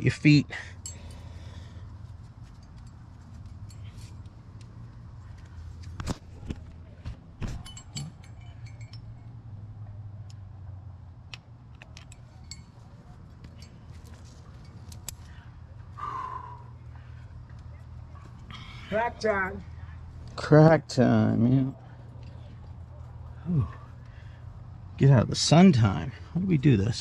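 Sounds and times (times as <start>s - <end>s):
metal climbing gear clinking: 0.0s - 6.8s, 7.4s - 10.4s, 11.3s - 15.9s.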